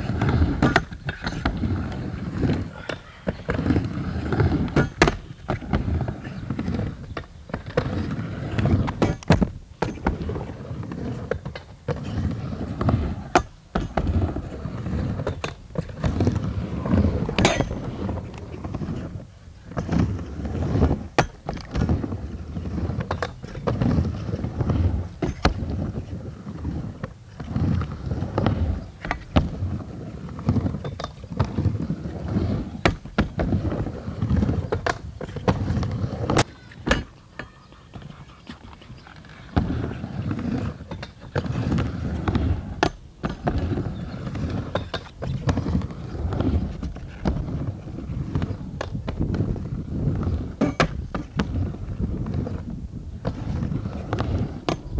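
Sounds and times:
skateboard wheels rumbling: 0.0s - 54.9s
skateboard clacking on surface: 14.9s - 19.1s, 30.3s - 54.9s.

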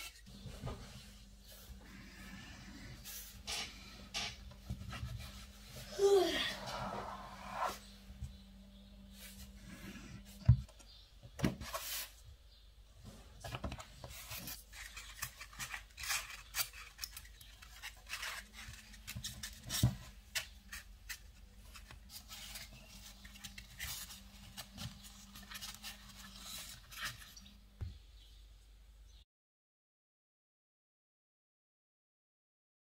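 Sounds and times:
blade scraping fondant: 5.0s - 8.0s.

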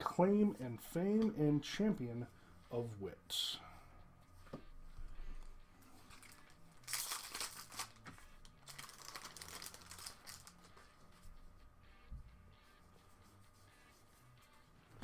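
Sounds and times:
foil wrapper tearing and crinkling: 6.1s - 8.0s, 8.6s - 10.6s.

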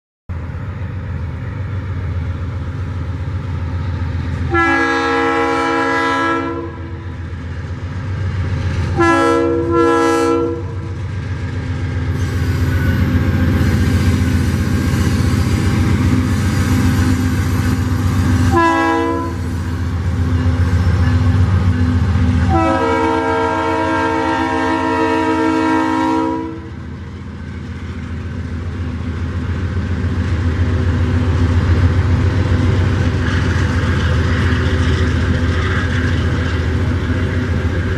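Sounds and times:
train engine and wheels rumbling: 0.3s - 37.9s
locomotive air horn blasts: 4.5s - 7.0s, 8.9s - 10.9s, 18.3s - 19.6s, 22.4s - 26.8s.

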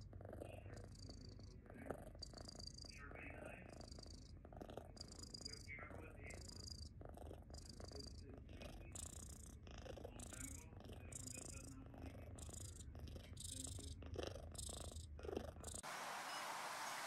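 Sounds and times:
cat purring: 0.0s - 15.9s
steady hiss: 15.8s - 17.0s.

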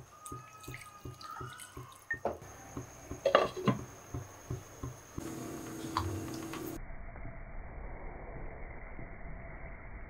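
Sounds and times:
water pouring into a pan: 0.0s - 2.2s.

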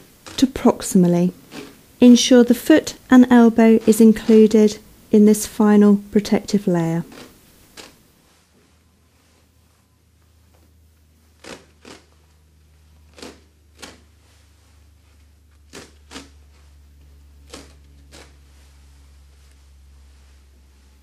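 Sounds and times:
bandage ripping off roll: 1.4s - 1.8s, 7.1s - 8.0s, 11.3s - 12.2s, 13.1s - 14.2s.

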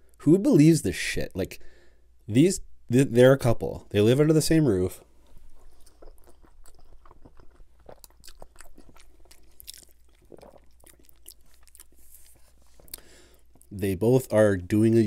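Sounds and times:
wet chewing mouth smacks: 5.4s - 13.7s.

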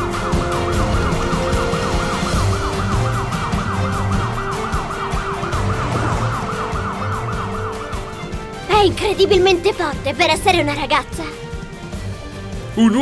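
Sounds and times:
police siren yelping: 0.0s - 10.0s
background music with beat: 0.0s - 10.6s.

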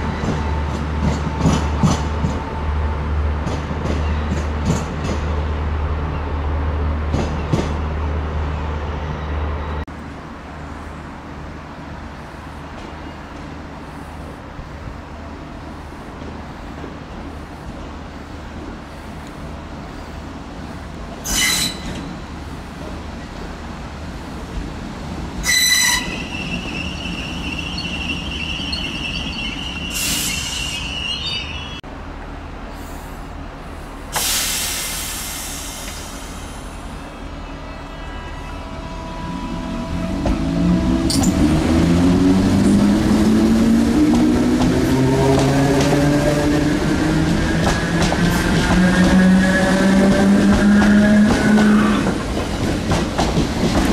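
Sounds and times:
train engine rumble: 0.0s - 53.9s
high-pitched train toots: 21.2s - 22.1s, 25.4s - 31.8s
train wheels squealing: 21.2s - 22.2s, 25.4s - 31.8s.

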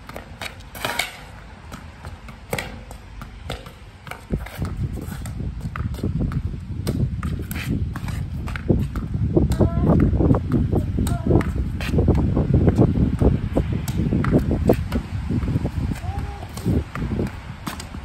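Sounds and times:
tennis ball knocking on stone wall: 0.1s - 4.8s.

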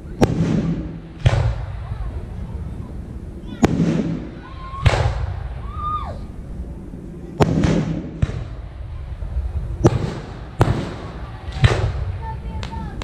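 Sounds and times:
firework shells bursting: 7.4s - 8.8s, 9.8s - 13.0s.

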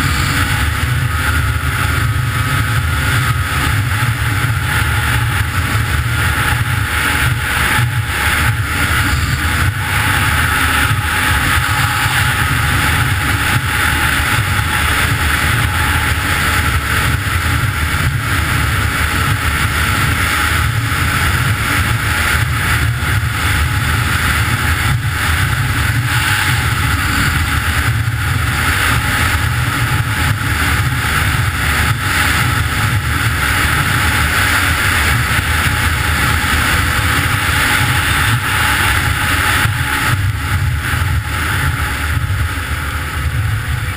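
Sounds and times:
snowmobile engine running: 0.0s - 43.9s
wind noise on microphone: 0.0s - 43.9s.

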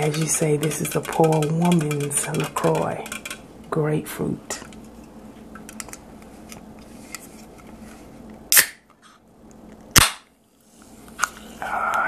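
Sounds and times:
can opening cracks: 8.5s - 8.8s, 9.9s - 10.3s.

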